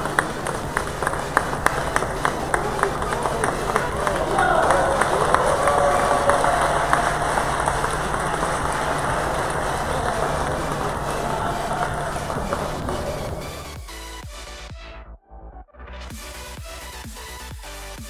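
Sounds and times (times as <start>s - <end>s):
crowd hubbub in a hall: 0.0s - 14.0s.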